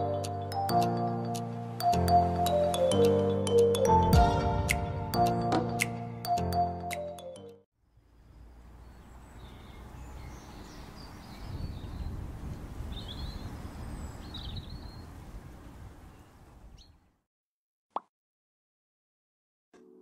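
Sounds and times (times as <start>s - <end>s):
birds chirping: 8.2s - 17.2s.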